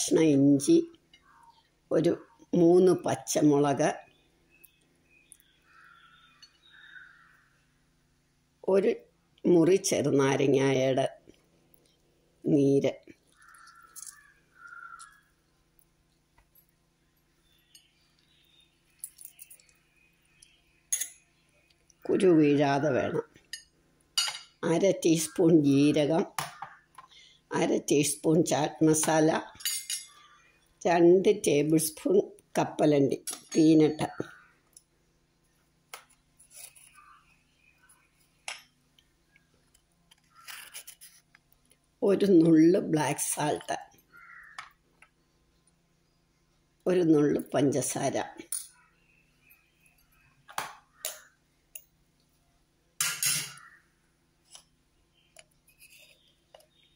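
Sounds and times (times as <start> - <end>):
steel kitchenware clinking: 23.5 - 24.6, 29.6 - 30.2, 53.0 - 53.6.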